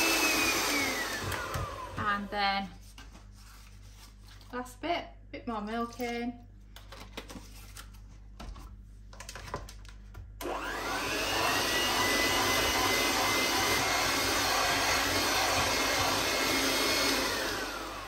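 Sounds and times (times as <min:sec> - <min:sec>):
electric hand mixer whining: 0:00.0 - 0:02.3, 0:10.4 - 0:18.0.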